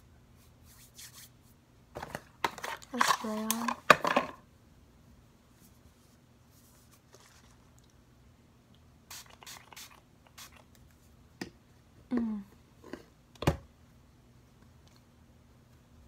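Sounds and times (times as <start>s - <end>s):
spray bottle hissing sprays: 9.1s - 10.6s
person humming: 12.1s - 12.6s.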